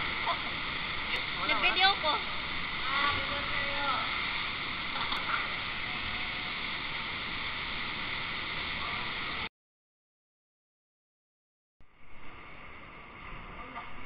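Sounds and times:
waterfall rushing: 0.0s - 9.5s.

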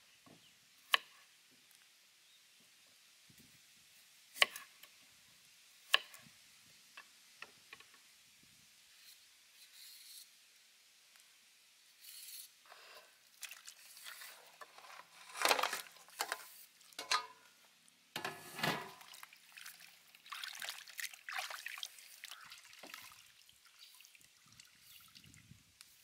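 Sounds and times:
water splashing and sloshing in bowl: 13.2s - 17.4s, 18.2s - 25.4s.

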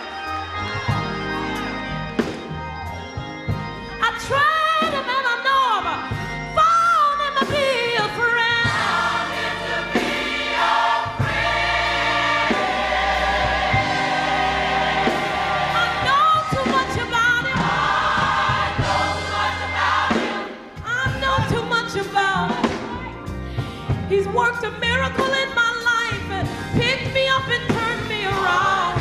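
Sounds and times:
band accompaniment: 0.0s - 29.0s
gospel choir singing: 7.2s - 24.0s, 25.2s - 29.0s.

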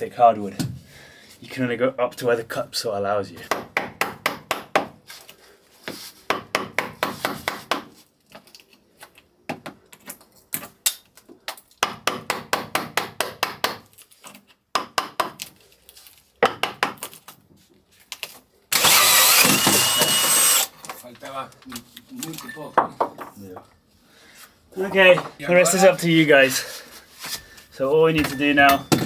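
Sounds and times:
hammer striking chisel into wood: 3.5s - 5.0s, 6.3s - 7.9s, 11.8s - 13.8s, 14.7s - 15.4s
power drill with cup saw cutting: 18.7s - 20.7s.

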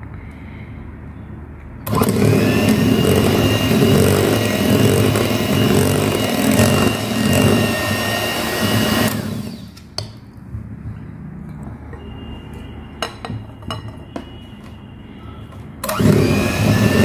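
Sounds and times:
electric hand mixer whine: 1.9s - 9.8s, 15.8s - 17.0s.

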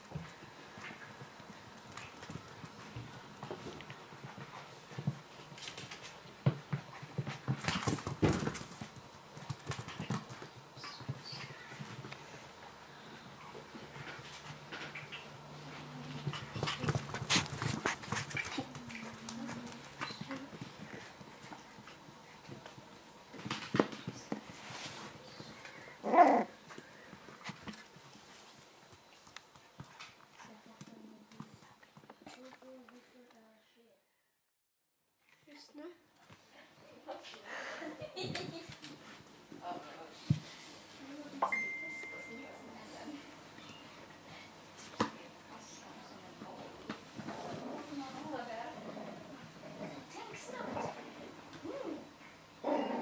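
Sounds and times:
paws clicking and tapping: 0.2s - 12.3s, 16.2s - 26.0s
scuffling on a rug: 24.0s - 29.2s.

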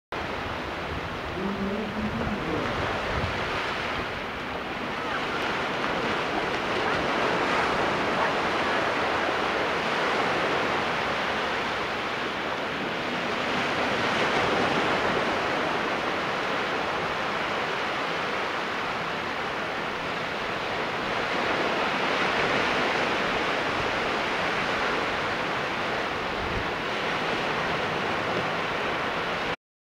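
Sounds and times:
ocean surf breaking on shore: 0.2s - 29.6s.

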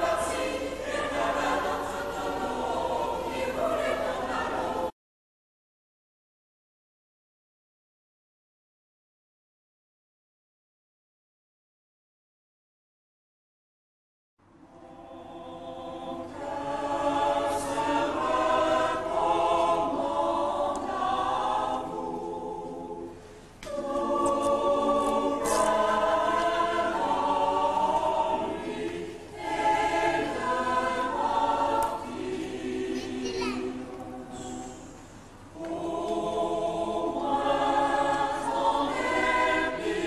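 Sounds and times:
mixed choir singing: 0.0s - 5.0s, 14.6s - 40.0s.

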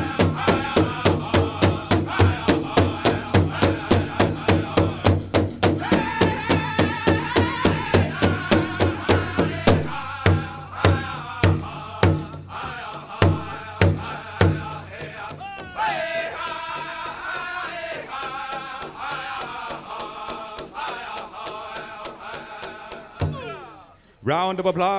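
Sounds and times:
large drum beating: 0.0s - 18.1s
men singing high-pitched: 0.0s - 24.0s.

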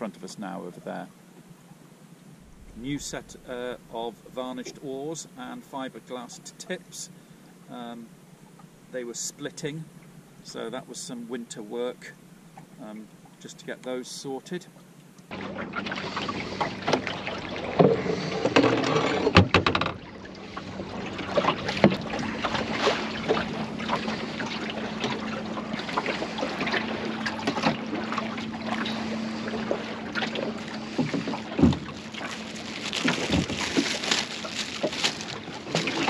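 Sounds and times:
water lapping against boat hull: 0.4s - 5.0s, 14.7s - 36.0s
knocks and clicks from boat: 15.5s - 36.0s.

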